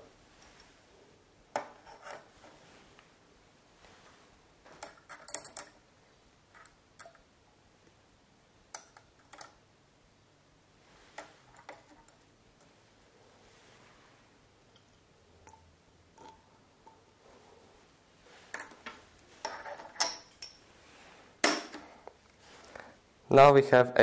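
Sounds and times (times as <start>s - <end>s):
laboratory glassware clinking: 19.4s - 20.7s.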